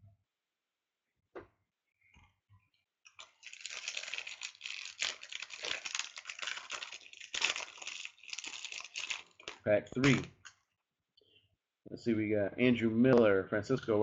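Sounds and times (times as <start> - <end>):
wrapper tearing and crinkling: 3.1 - 10.5.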